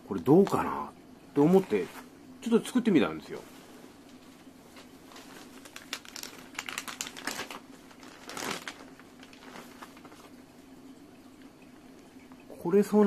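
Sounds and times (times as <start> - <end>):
plastic packaging crinkling: 4.7 - 10.4.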